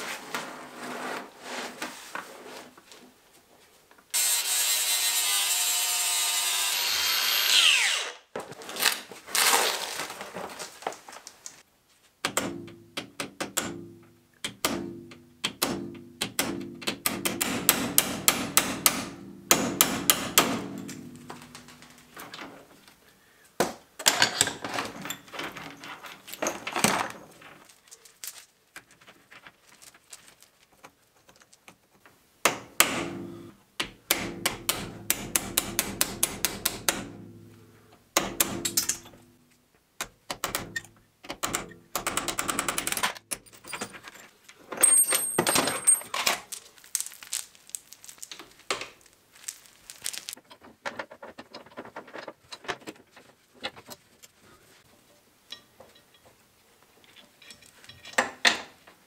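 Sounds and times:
hammer tapping pin punch on steel: 33.8s - 37.2s, 38.2s - 39.2s.

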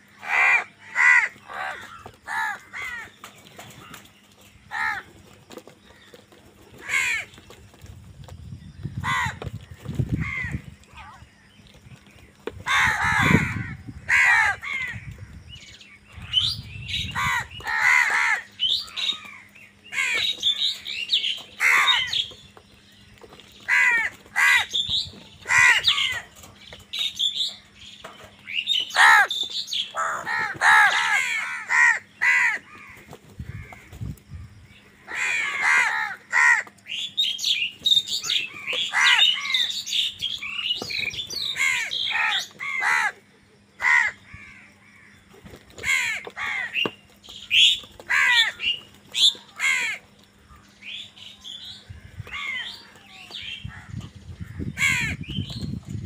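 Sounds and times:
crows cawing: 0.0s - 4.1s, 4.7s - 5.2s, 5.9s - 7.5s, 9.0s - 11.2s, 12.5s - 15.4s, 17.1s - 22.4s, 23.6s - 26.5s, 28.7s - 34.0s, 35.0s - 37.0s, 38.2s - 40.1s, 41.4s - 43.2s, 43.8s - 45.2s, 45.8s - 51.0s, 51.9s - 55.4s.

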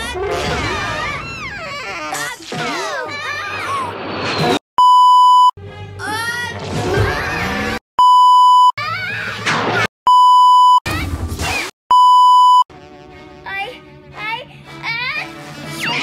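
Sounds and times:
test-tone beep: 4.8s - 5.6s, 8.0s - 8.8s, 10.1s - 10.8s, 11.9s - 12.7s.

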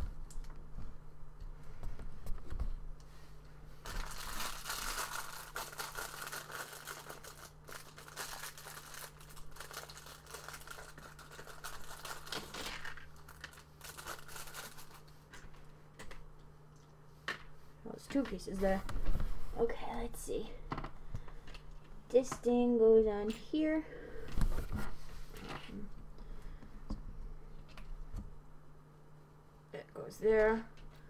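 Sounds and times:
plastic bag crinkling and tearing: 3.8s - 15.1s.

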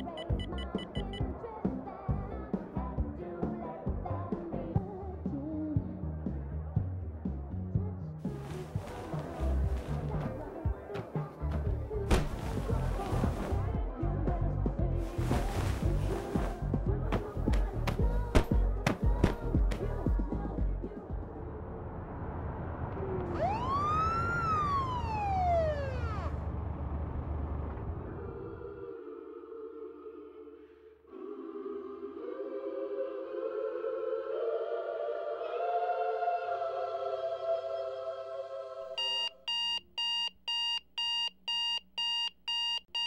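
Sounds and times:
alarm clock beeping: 0.0s - 1.2s, 39.0s - 43.0s
police siren wail: 23.3s - 26.5s.

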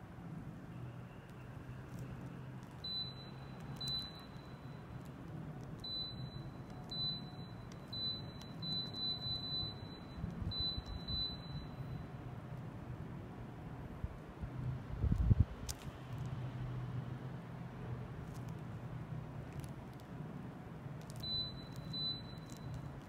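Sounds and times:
short high beeps: 5.9s - 12.1s, 21.2s - 22.8s.

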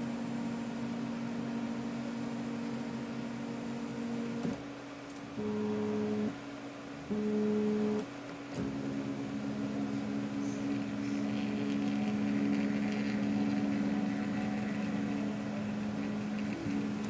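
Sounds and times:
stepper motors whining: 8.6s - 17.0s.

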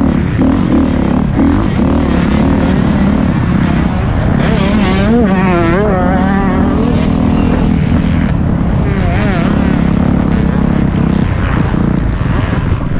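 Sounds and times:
motocross bike engine revving: 0.0s - 12.9s.

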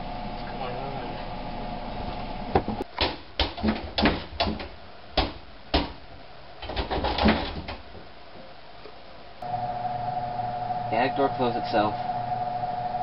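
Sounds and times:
attic ladder knocking and clanking: 2.6s - 6.0s, 6.6s - 8.1s.

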